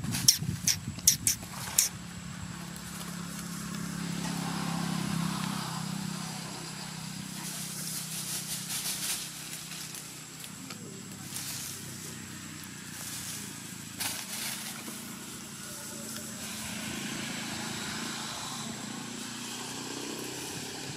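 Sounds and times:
leaf rustling: 1.3s - 5.6s, 7.1s - 18.2s
dry leaves crackling: 1.4s - 20.9s
vehicle engine passing: 1.5s - 20.9s.

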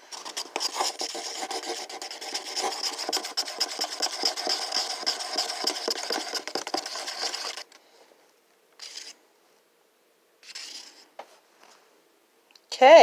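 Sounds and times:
stick stirring thick paint: 0.0s - 7.7s, 8.8s - 9.2s.

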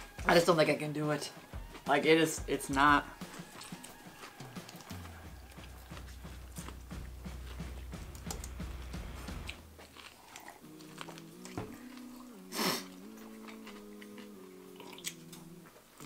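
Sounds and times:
background music: 0.0s - 16.0s
people chewing sandwiches: 3.1s - 16.0s
wet mouth clicks: 3.2s - 5.1s, 9.4s - 15.5s.

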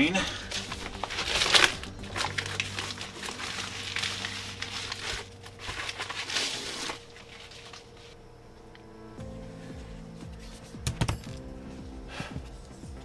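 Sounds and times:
packaging crinkling: 0.3s - 8.2s.

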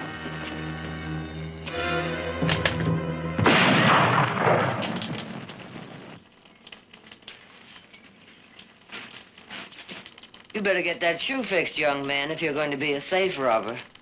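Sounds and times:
dramatic orchestral music: 0.0s - 3.8s.

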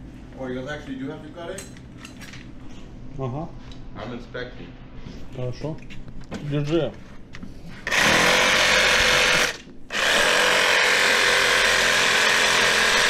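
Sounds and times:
reciprocating saw cutting metal: 7.9s - 13.0s.

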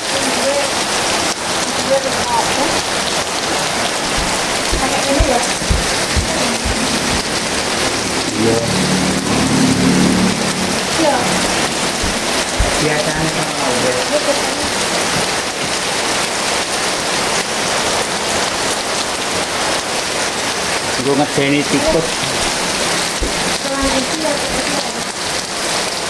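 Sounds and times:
heavy rain pouring: 0.0s - 26.0s
dull low thumps: 4.0s - 8.4s, 10.4s - 13.5s, 22.2s - 24.0s.

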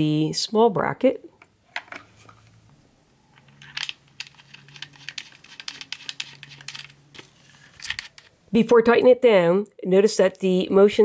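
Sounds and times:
plastic parts clicking and knocking: 1.4s - 2.4s, 3.4s - 8.4s.

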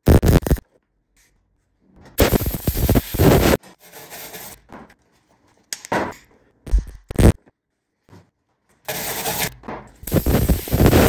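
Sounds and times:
welder arc crackling: 0.0s - 0.6s, 2.2s - 3.6s, 10.0s - 11.0s.

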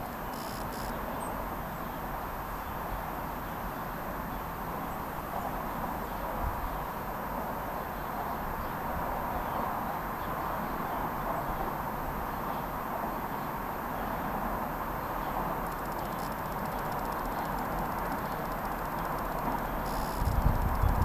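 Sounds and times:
faint bird chirps: 15.0s - 21.0s
strong wind rushing: 20.2s - 21.0s.

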